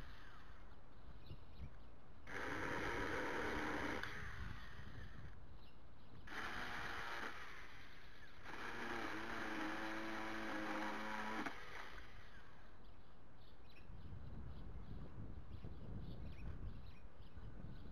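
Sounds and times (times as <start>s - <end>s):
electric chainsaw motor whine: 2.3s - 5.4s, 6.3s - 12.6s.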